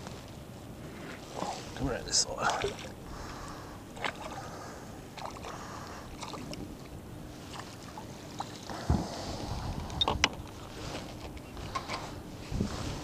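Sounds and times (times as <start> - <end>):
water lapping on plastic hull: 2.3 - 11.8.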